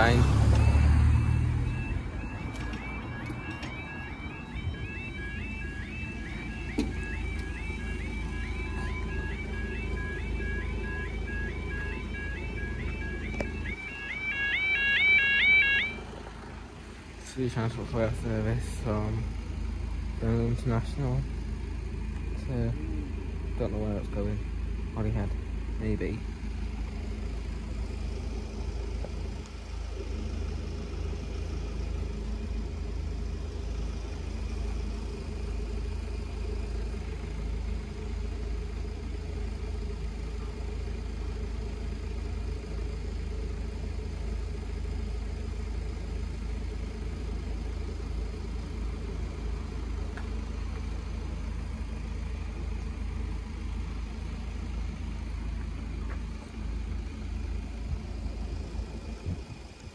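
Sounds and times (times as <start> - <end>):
vehicle engines idling: 0.0 - 59.9.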